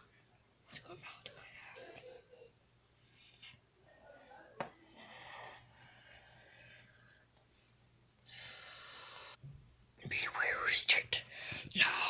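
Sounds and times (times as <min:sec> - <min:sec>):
breathy whispering: 0:03.1 - 0:07.2, 0:10.0 - 0:12.0.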